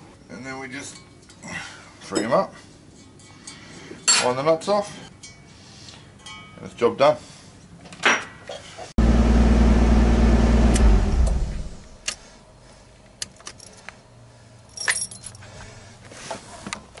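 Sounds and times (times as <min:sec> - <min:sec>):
car engine idling: 0:09.0 - 0:12.0
engine winding down: 0:09.0 - 0:12.1
keys jangling: 0:13.4 - 0:13.9, 0:14.7 - 0:15.4.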